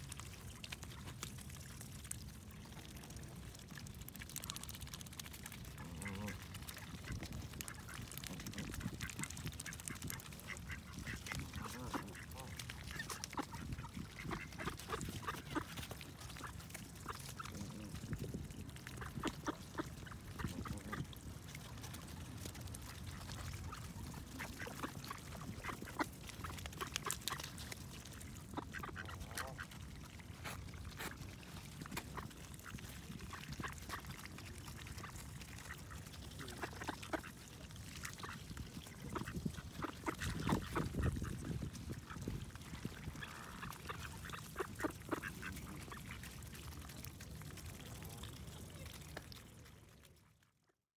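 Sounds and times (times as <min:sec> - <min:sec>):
bills pecking at seed: 0:00.0 - 0:49.7
duck calls: 0:09.6 - 0:17.2.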